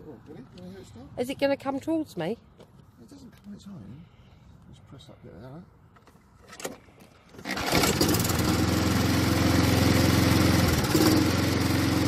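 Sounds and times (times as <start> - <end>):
recoil cord pull-start: 6.5 - 8.7
lawnmower engine running: 7.3 - 12.0.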